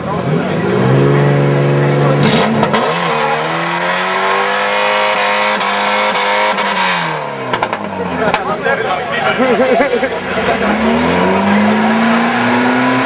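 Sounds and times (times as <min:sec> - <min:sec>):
car engine revving hard: 0:00.0 - 0:08.4, 0:09.4 - 0:13.0.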